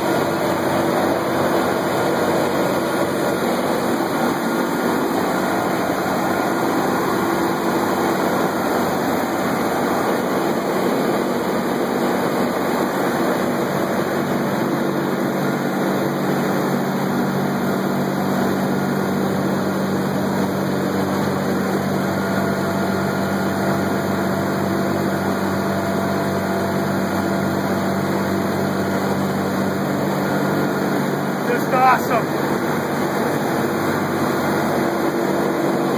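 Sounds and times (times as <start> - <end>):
aircraft radial engines droning: 0.0 - 35.9.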